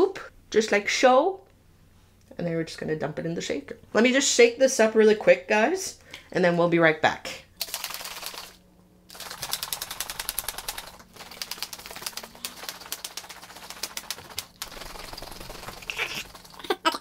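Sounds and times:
shaker cup rattling: 0:07.6 - 0:16.8.

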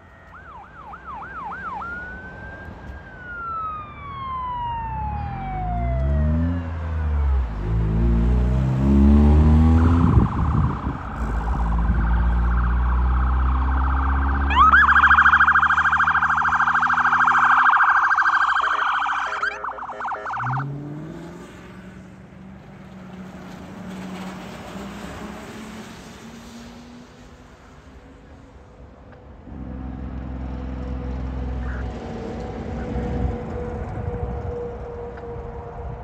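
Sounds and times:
emergency vehicle siren: 0:00.0 - 0:36.0
vehicle engine revving: 0:05.9 - 0:17.5, 0:19.7 - 0:26.9.

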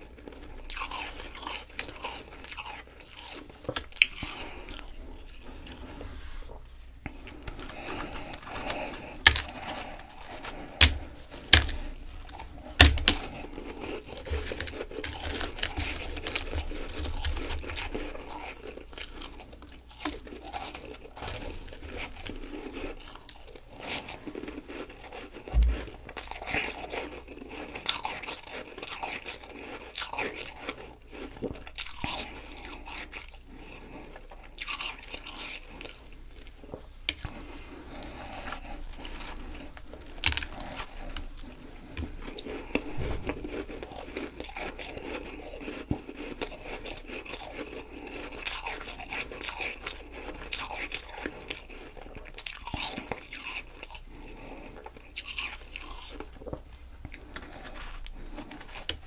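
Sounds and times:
chewing crunchy ice: 0:00.0 - 0:59.0
dull low thumps: 0:25.5 - 0:26.0.

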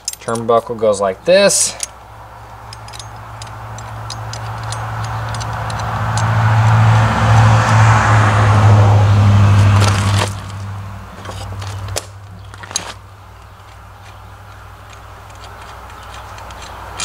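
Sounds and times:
metal chain and hook clinking: 0:00.0 - 0:00.7, 0:01.4 - 0:07.0, 0:11.2 - 0:17.0
vehicle engine hum and road noise: 0:00.0 - 0:17.0.

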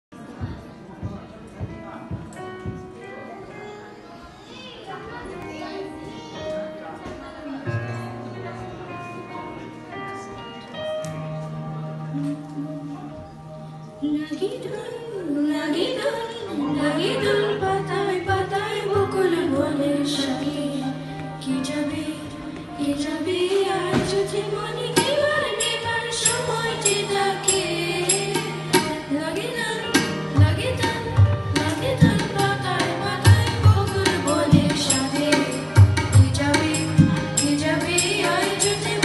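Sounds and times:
keyboard accompaniment: 0:00.1 - 0:39.0
woman singing: 0:14.0 - 0:39.0
harmonium: 0:16.5 - 0:39.0
deep drum beats: 0:30.0 - 0:39.0.

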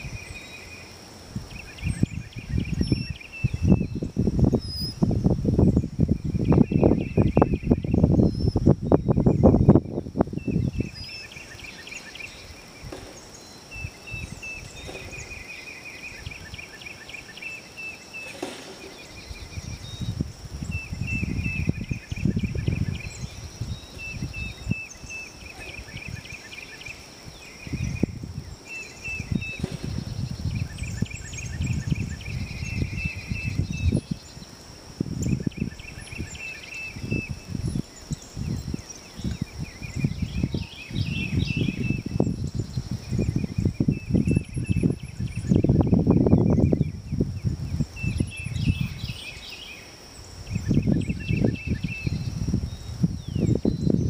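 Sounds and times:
high chirping calls: 0:00.0 - 0:54.0
wind gusting on microphone: 0:00.0 - 0:54.0.

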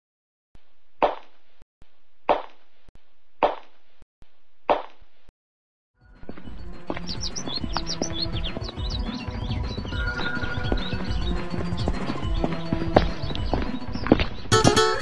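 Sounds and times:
music: 0:06.0 - 0:15.0.

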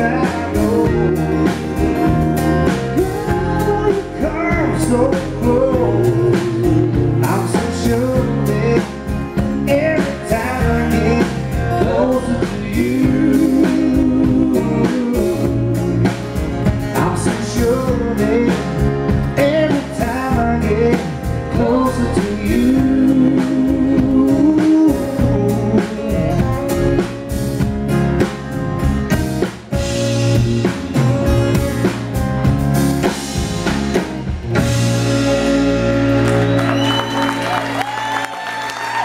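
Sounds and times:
man singing: 0:00.0 - 0:27.3
acoustic guitar: 0:00.0 - 0:38.1
drum kit: 0:00.0 - 0:39.0
electric bass: 0:00.0 - 0:39.0.

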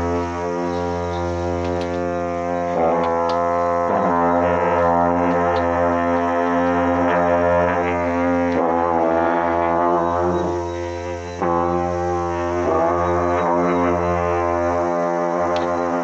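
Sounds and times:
long trumpets deep drone: 0:00.0 - 0:16.0.

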